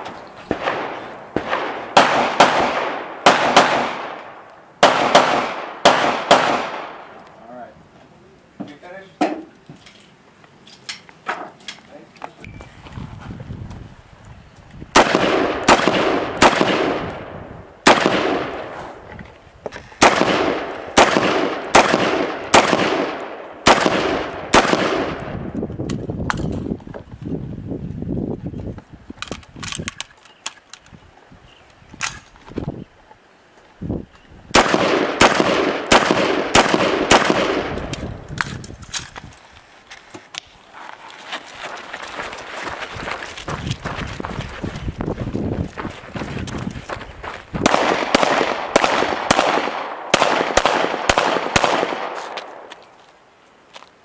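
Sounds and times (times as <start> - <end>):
rifle shots echoing: 0.5 - 7.2, 15.0 - 18.8, 20.0 - 25.4, 34.5 - 38.0, 47.6 - 52.7.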